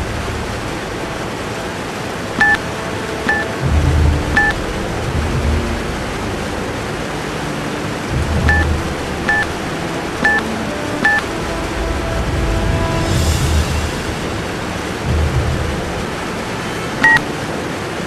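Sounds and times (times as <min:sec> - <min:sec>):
low droning rumble: 0:00.0 - 0:17.6
timer button beeps: 0:02.4 - 0:02.6, 0:03.3 - 0:03.5, 0:04.4 - 0:04.6, 0:09.3 - 0:09.5, 0:10.2 - 0:10.4, 0:11.0 - 0:11.2, 0:17.0 - 0:17.2.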